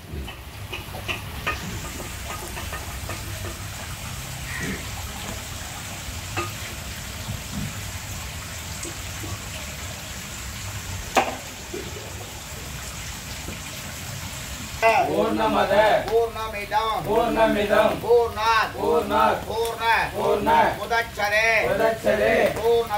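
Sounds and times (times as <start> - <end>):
fire popping: 0.0 - 8.2, 15.7 - 22.9
fire crackling and hissing: 0.0 - 22.9.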